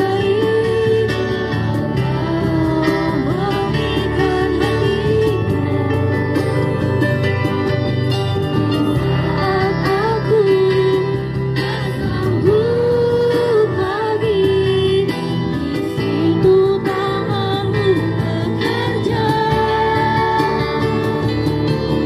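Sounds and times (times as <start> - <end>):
instrumental accompaniment: 0.0 - 22.0
religious song singing: 16.4 - 21.8.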